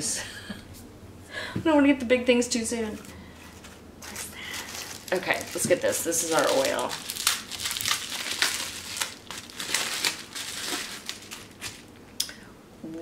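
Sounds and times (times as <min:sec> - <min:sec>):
packaging crinkling and rustling: 0:03.4 - 0:12.0.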